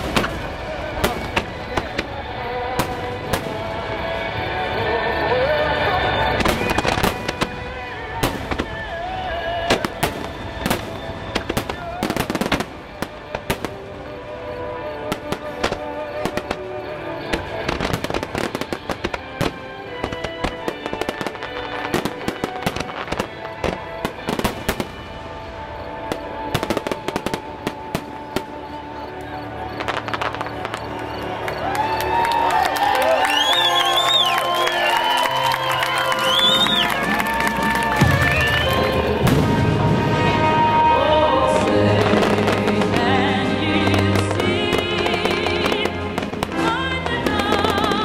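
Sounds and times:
fireworks bursting: 0.0s - 48.0s
music playing: 0.0s - 48.0s.

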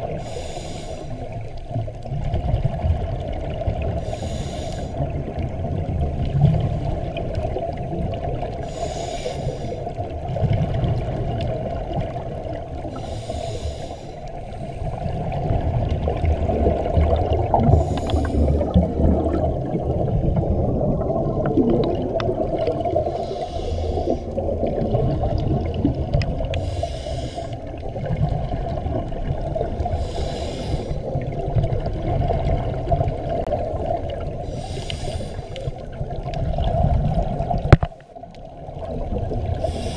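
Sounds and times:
scuba regulator breathing: 0.0s - 1.6s, 4.0s - 5.1s, 8.6s - 10.0s, 12.8s - 15.3s, 17.5s - 19.8s, 22.8s - 24.7s, 26.4s - 27.8s, 29.8s - 31.3s, 34.4s - 35.9s, 39.5s - 39.9s
low underwater rumble: 0.0s - 39.9s.

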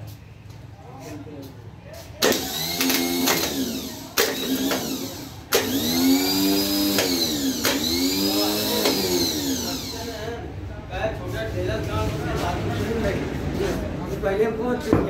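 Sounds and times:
starter motor whirring: 2.2s - 10.3s.

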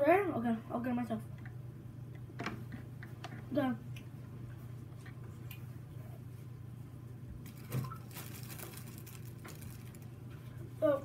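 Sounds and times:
low room hum: 0.0s - 11.0s
faint crinkly rustling: 7.4s - 11.0s.

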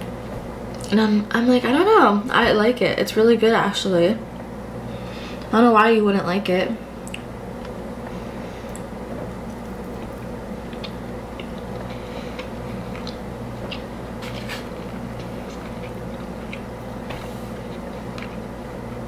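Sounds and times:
low background hum: 0.0s - 19.0s
person chewing food: 7.1s - 19.0s.

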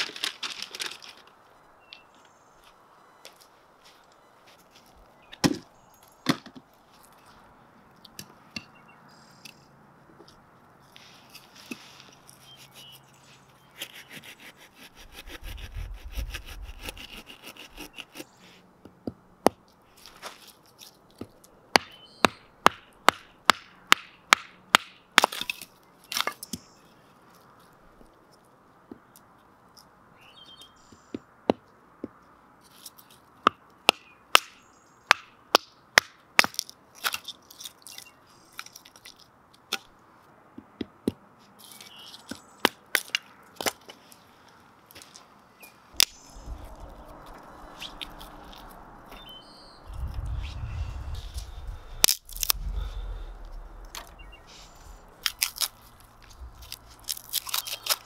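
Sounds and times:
wood cracking as kindling splits: 0.0s - 1.3s, 52.0s - 54.2s, 54.9s - 58.0s.

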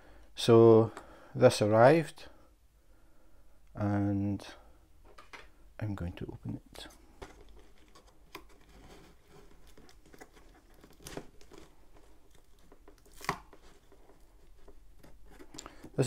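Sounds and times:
tape tearing: 7.2s - 16.0s.

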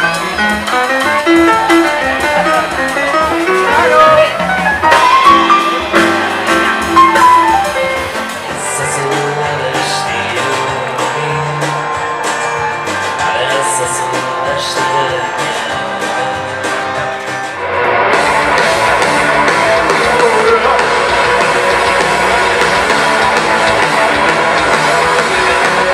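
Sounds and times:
electric rock band: 0.0s - 25.9s.

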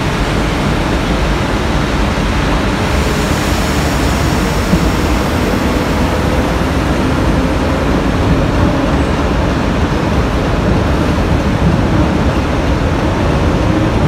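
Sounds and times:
diesel locomotive engines rumbling: 0.0s - 14.0s.

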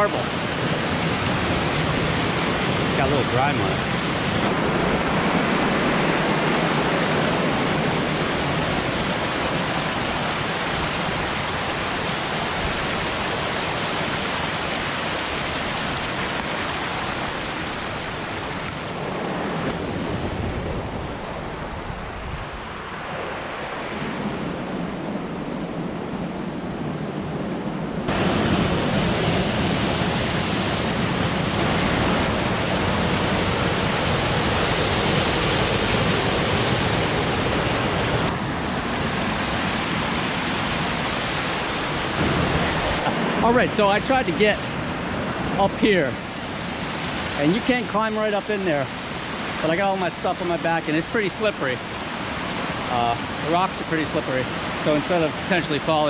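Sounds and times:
creek water rushing over rocks: 0.0s - 23.9s, 28.1s - 56.0s.

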